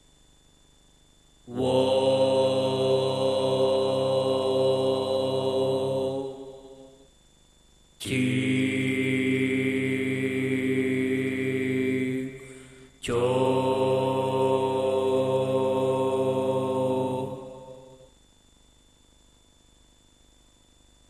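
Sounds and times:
low chanted drones: 0:01.5 - 0:07.1, 0:08.0 - 0:18.1.

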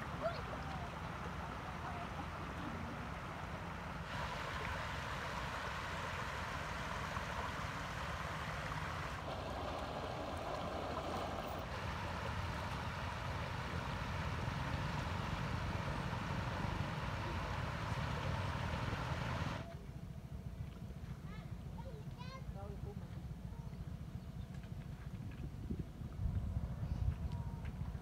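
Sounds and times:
shallow water rushing: 0:00.0 - 0:19.7
wind rumble on microphone: 0:24.2 - 0:28.0.

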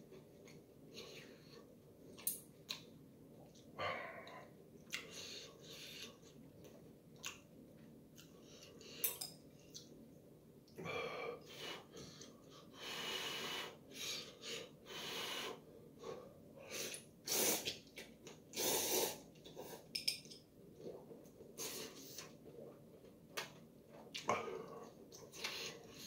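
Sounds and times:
man slurping noodles: 0:17.3 - 0:17.8, 0:18.6 - 0:19.2.

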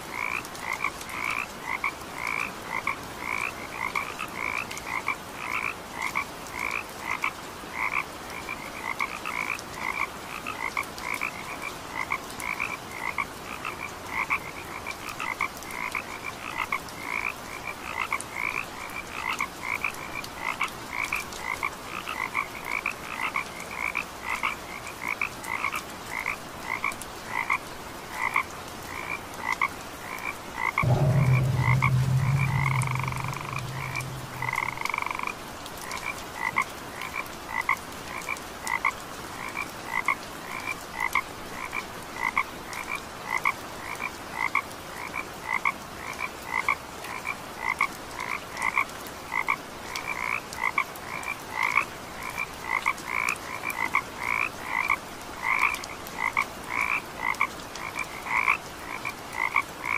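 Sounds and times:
loud low hum: 0:30.8 - 0:34.9.

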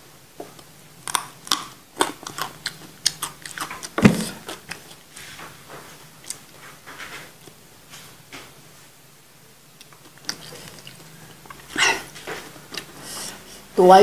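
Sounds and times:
crunchy chewing: 0:00.4 - 0:05.1, 0:09.8 - 0:13.0
thud: 0:04.0 - 0:04.4.

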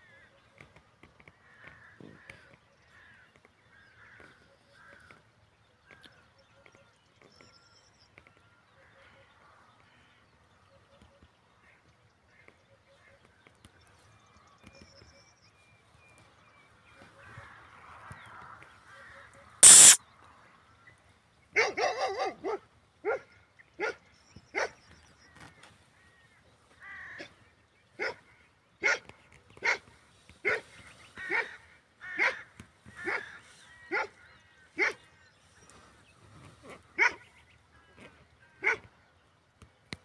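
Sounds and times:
dog barking: 0:21.6 - 0:24.0, 0:28.0 - 0:28.2, 0:28.8 - 0:29.0, 0:29.6 - 0:29.8, 0:30.4 - 0:30.6, 0:33.9 - 0:34.1, 0:34.8 - 0:35.0, 0:37.0 - 0:37.2, 0:38.6 - 0:38.8.

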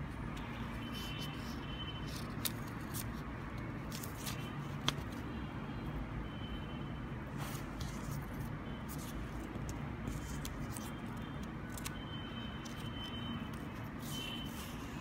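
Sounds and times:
labels clicking and rustling: 0:00.2 - 0:05.3, 0:08.9 - 0:15.0.

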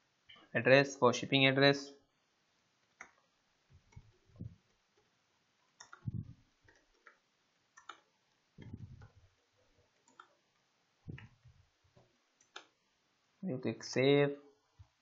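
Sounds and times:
keyboard keys clicking: 0:05.8 - 0:07.2
dull low thumps: 0:06.0 - 0:06.4, 0:08.6 - 0:09.2, 0:11.1 - 0:11.7.

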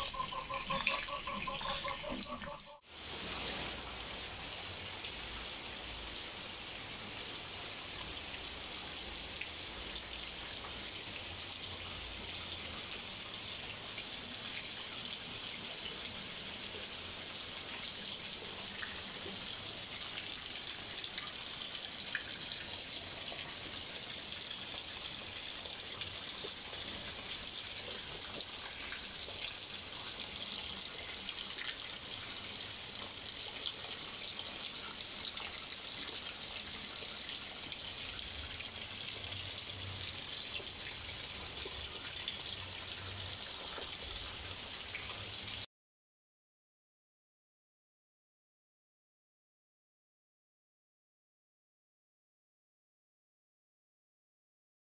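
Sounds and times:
heavy rain splashing into water: 0:02.9 - 0:12.2.

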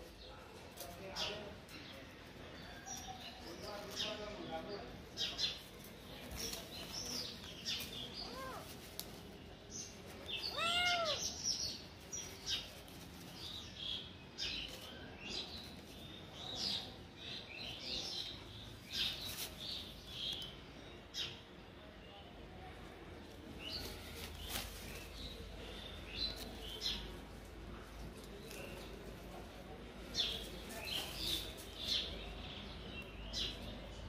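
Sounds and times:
kitten meowing: 0:10.5 - 0:11.3.

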